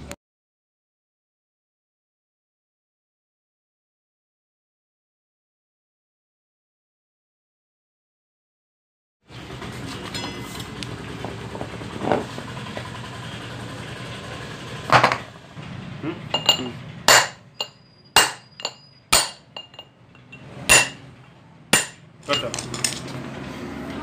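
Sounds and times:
hammer striking metal: 16.3 - 21.1, 21.7 - 22.5
ringing metallic blows: 16.4 - 21.1, 21.8 - 22.5.

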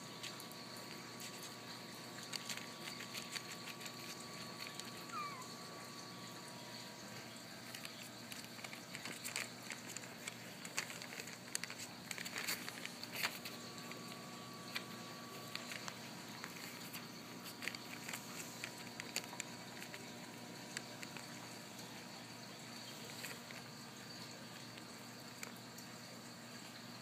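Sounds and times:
puppy squeaking: 5.0 - 5.6.

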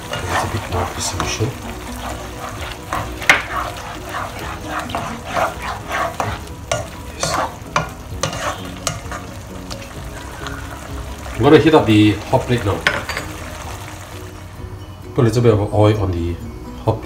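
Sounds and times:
spatula scraping a wok: 0.0 - 11.4.

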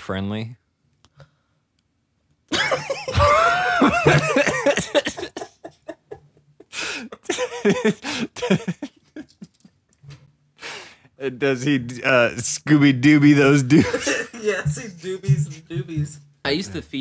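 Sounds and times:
men laughing: 2.5 - 9.8, 13.6 - 15.8.

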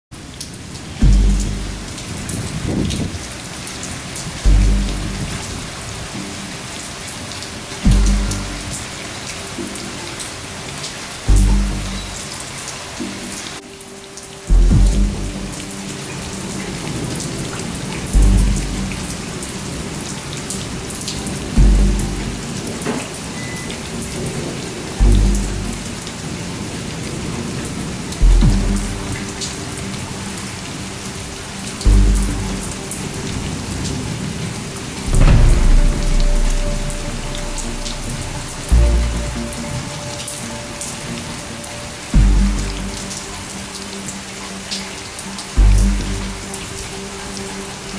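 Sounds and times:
steady rain: 0.1 - 47.9
water drips and patters: 0.2 - 47.9
deep low boom with held chord: 1.0 - 3.0, 4.4 - 5.5, 7.8 - 8.8, 11.3 - 12.2, 14.5 - 15.6, 18.1 - 19.1, 21.5 - 22.6, 25.0 - 26.1, 28.2 - 29.3, 31.9 - 32.8, 35.1 - 40.0, 42.2 - 43.2, 45.6 - 46.5.

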